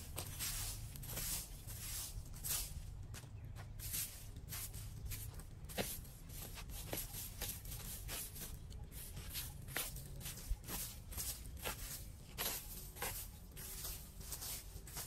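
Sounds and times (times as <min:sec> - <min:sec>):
broom sweeping on concrete: 0:00.0 - 0:15.0.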